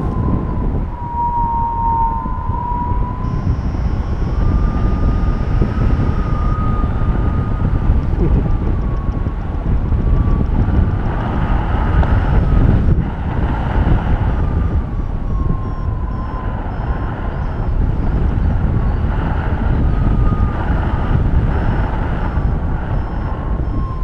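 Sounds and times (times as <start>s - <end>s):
thin whistling tone: 0.0s - 9.3s, 14.4s - 24.0s
wind rushing over microphone: 0.0s - 24.0s.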